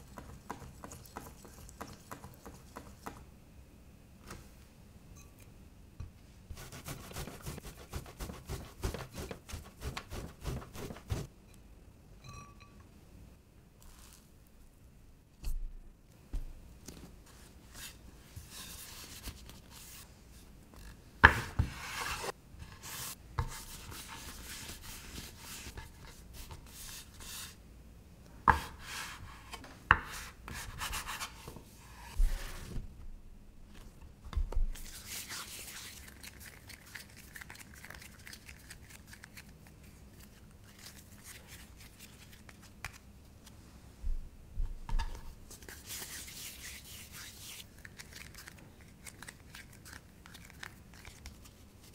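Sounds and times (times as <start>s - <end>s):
dough rubbing and rustling: 0.0s - 3.2s, 6.5s - 11.3s, 17.0s - 20.5s, 21.3s - 27.6s, 28.5s - 33.0s, 34.7s - 39.5s, 45.4s - 51.9s.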